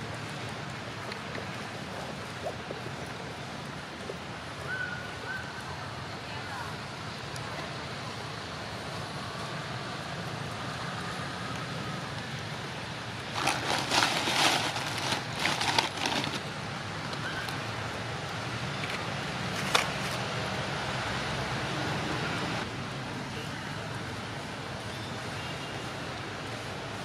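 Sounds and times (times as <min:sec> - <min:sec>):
outdoor background noise: 0:00.0 - 0:27.0
dry leaves and twigs crackling: 0:13.2 - 0:17.8.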